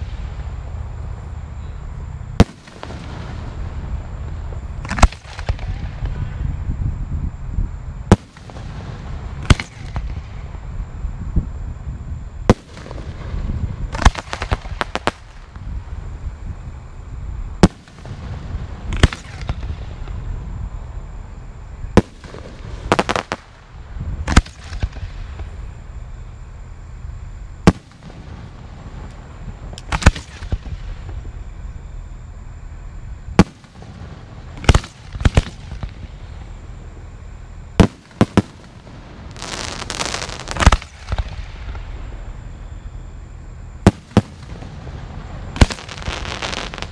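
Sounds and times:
crackling pops of firework stars: 0.0s - 6.5s, 8.0s - 10.6s, 12.4s - 16.2s, 17.6s - 20.3s, 21.9s - 26.0s, 27.6s - 31.6s, 33.3s - 46.9s
fireworks shells bursting: 22.0s - 23.6s, 37.8s - 41.9s.

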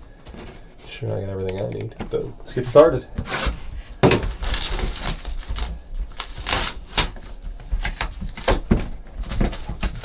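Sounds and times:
cardboard box crinkling and scraping: 3.2s - 10.0s.

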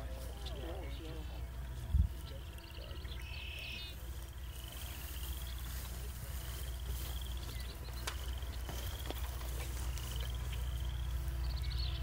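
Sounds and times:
frogs trilling: 0.0s - 12.0s
wind rumble on microphone: 1.5s - 2.6s.

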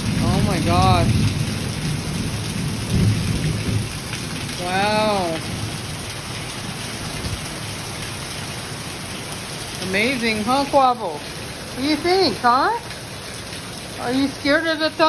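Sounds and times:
low rumble of thunder: 0.0s - 8.2s
heavy rain pouring: 0.0s - 15.0s.

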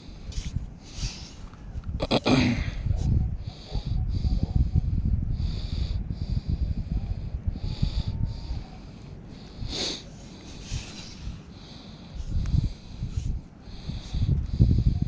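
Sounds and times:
wind buffeting microphone: 0.0s - 15.0s
gritty scrape of sand: 0.3s - 1.4s, 9.7s - 11.5s.

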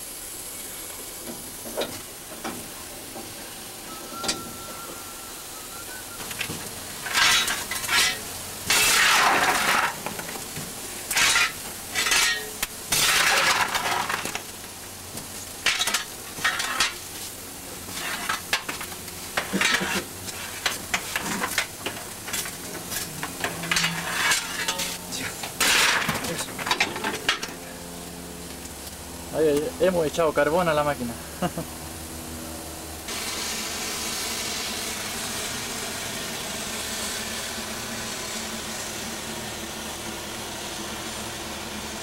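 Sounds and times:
fire iron scraping through coal: 5.9s - 27.7s.

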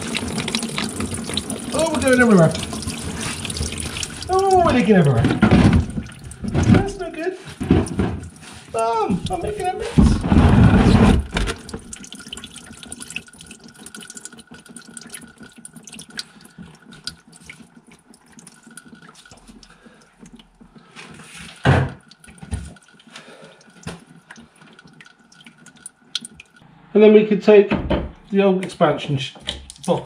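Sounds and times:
coolant dripping and splashing: 0.0s - 26.6s, 29.4s - 30.0s
loud thump: 27.7s - 28.2s.

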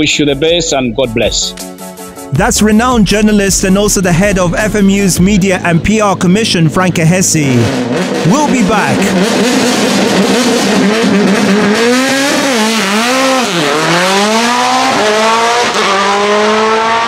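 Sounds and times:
racing car engine revving: 2.4s - 17.0s.

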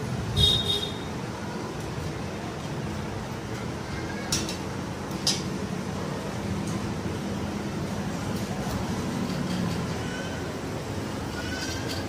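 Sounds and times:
small metal parts clinking: 11.2s - 12.0s.

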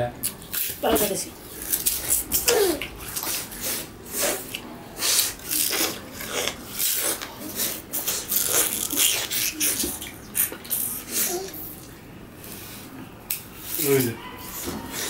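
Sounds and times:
chewing sugar cane crunching: 1.5s - 11.3s.

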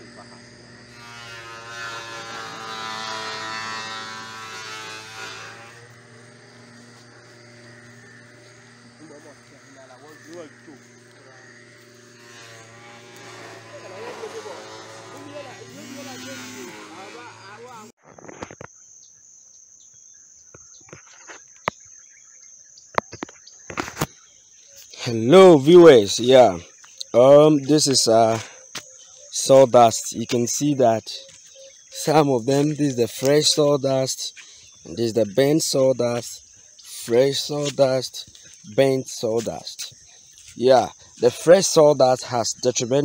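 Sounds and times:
constant low hum: 0.0s - 17.9s
high-pitched insect drone: 0.0s - 43.0s.

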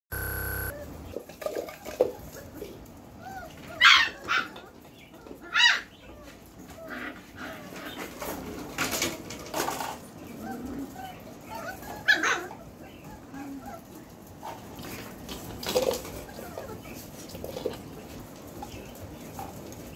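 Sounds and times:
puppies yipping and barking: 3.2s - 8.2s, 10.3s - 14.6s, 16.0s - 17.2s.

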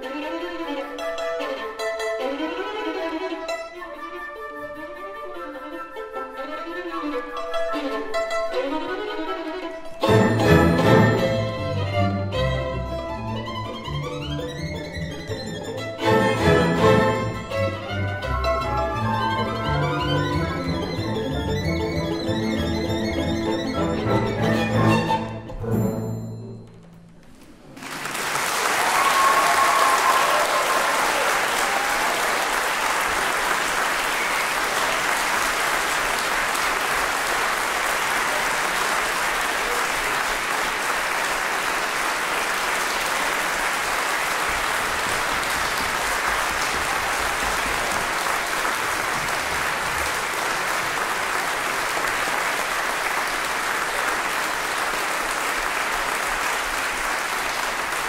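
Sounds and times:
music: 0.0s - 27.4s
audience applauding: 16.1s - 21.0s, 27.3s - 58.0s.

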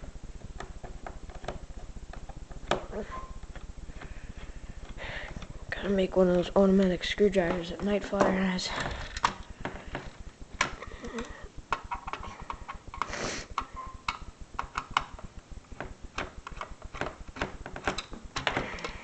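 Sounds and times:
plastic clicks and taps: 9.0s - 15.2s.

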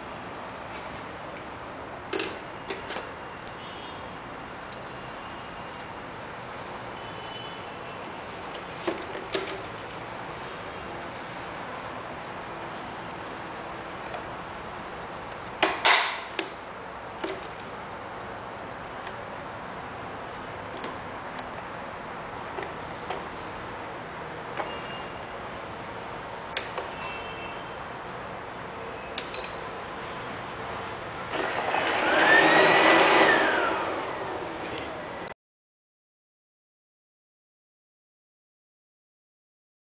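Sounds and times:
robot vacuum motor whine: 31.3s - 34.6s.

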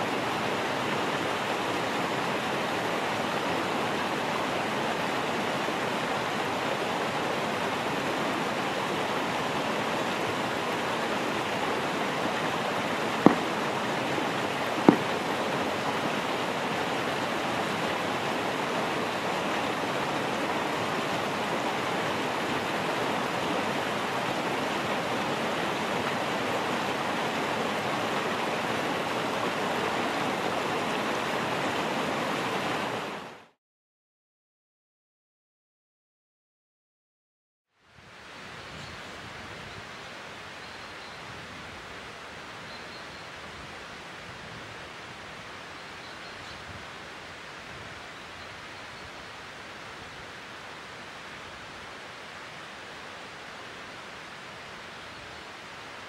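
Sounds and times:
mountain stream rushing: 0.0s - 33.6s, 37.9s - 56.0s
sharp knocks: 13.3s - 13.5s, 14.8s - 15.1s.

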